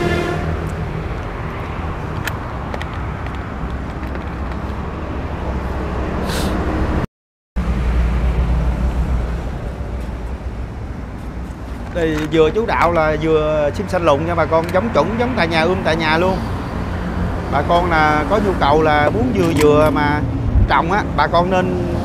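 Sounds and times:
outdoor background rumble and hiss: 7.6 - 22.0.

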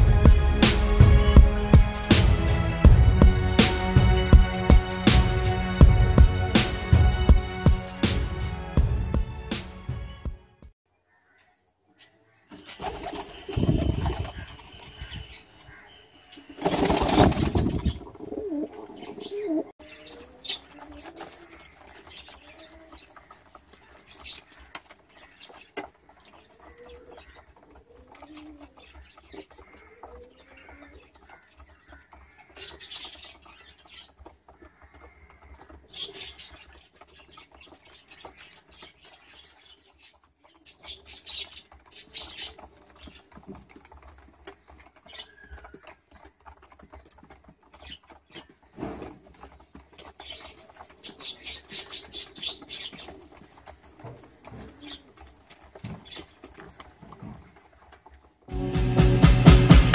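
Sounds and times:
wings flapping: 12.5 - 15.8, 16.5 - 58.4
pigeons cooing: 16.4 - 37.7, 40.5 - 58.0.

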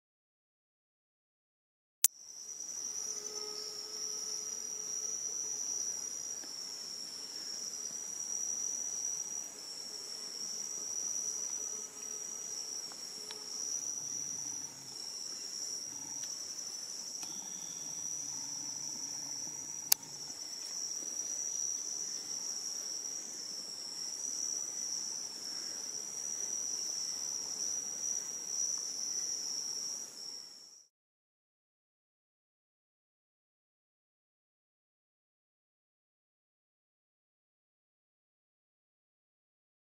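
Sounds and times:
night insects trilling: 2.1 - 30.9.

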